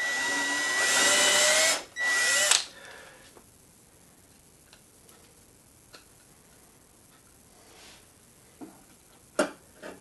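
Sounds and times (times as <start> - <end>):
drill boring into wood: 0.0 - 2.7.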